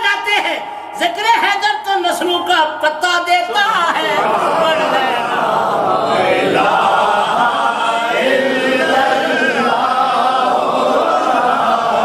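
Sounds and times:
men chanting in unison: 3.9 - 12.0.

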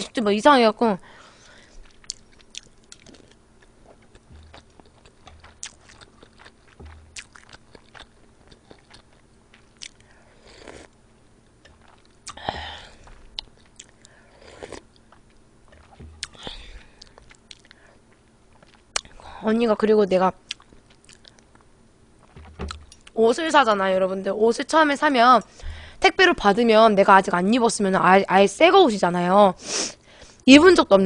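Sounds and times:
person chewing food: 1.4 - 19.2, 20.4 - 23.2
wet mouth noises: 1.8 - 11.0, 11.6 - 19.2.

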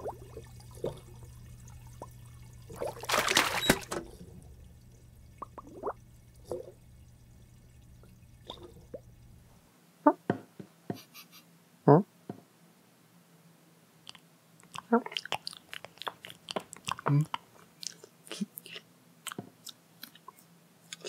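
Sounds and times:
water splashing: 0.0 - 9.5
watery blips and drips: 0.0 - 9.6
low steady hum: 0.0 - 10.1.

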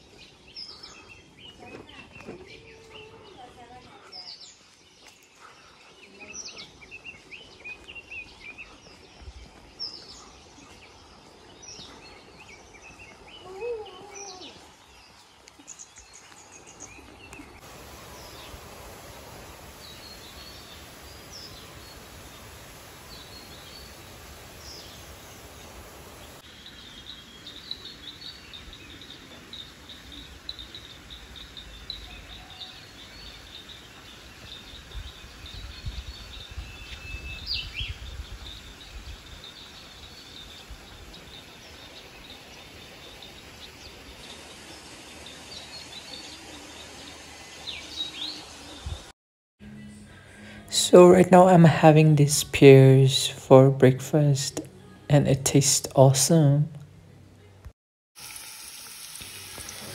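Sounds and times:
rapid high insect trill: 17.6 - 26.4.

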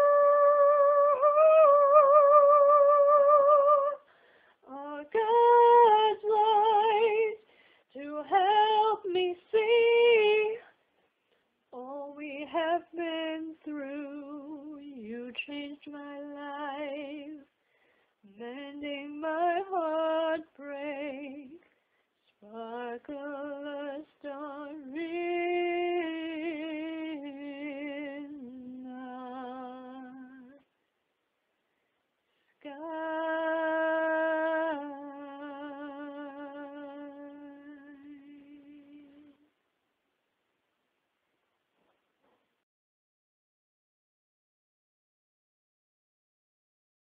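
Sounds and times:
woman singing a slow ballad: 0.0 - 4.0, 4.6 - 10.7, 11.7 - 17.5, 18.2 - 21.6, 22.3 - 30.7, 32.6 - 39.4.

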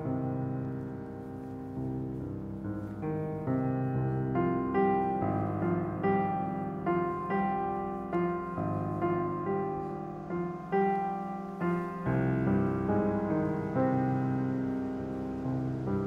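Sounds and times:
slow piano piece: 0.0 - 16.0.

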